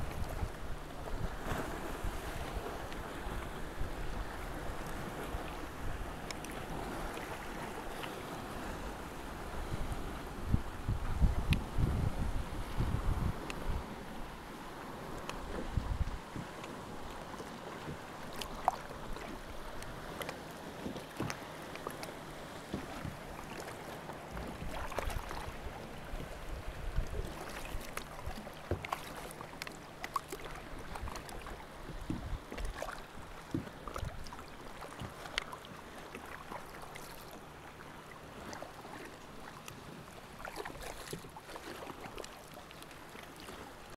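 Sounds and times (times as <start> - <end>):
wind rumble on microphone: 0.0 - 20.2, 24.3 - 28.9, 30.6 - 35.2
kayak paddle strokes: 0.0 - 43.9
sea water splashing: 0.0 - 43.9.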